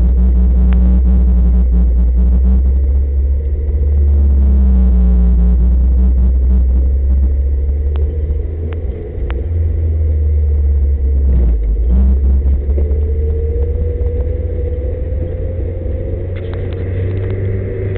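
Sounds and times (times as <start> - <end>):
rising tone: 0.0 - 8.8
truck engine low rumble: 0.0 - 17.9.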